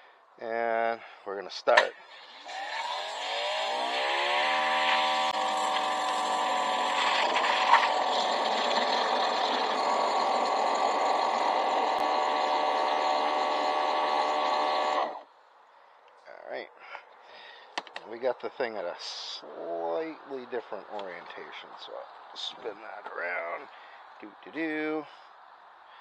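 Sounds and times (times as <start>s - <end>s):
water jet spraying into bucket: 1.8s - 15.2s
pressure washer motor whine: 2.1s - 15.3s.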